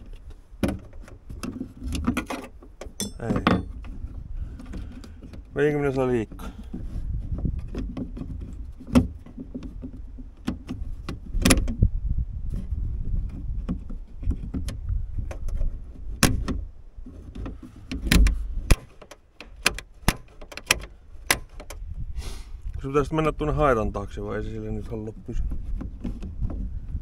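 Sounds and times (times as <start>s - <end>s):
metallic latch clicks and knocks: 0.0s - 6.4s, 7.3s - 11.8s, 13.3s - 21.9s.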